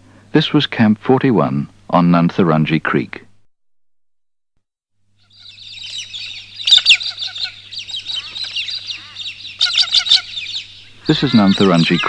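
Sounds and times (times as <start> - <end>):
faint low hum: 5.0 - 12.0
birds chirping and calling: 5.2 - 12.0.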